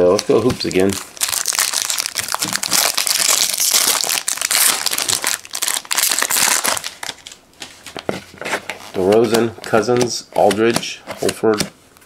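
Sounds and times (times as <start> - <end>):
plastic wrapper crinkling: 0.0 - 8.1.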